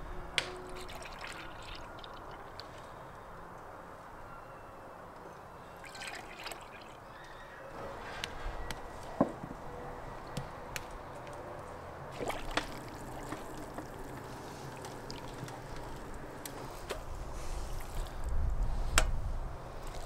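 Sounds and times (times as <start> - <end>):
broth boiling and sloshing: 0.7 - 2.8, 5.8 - 7.0, 12.1 - 18.6, 19.7 - 20.0.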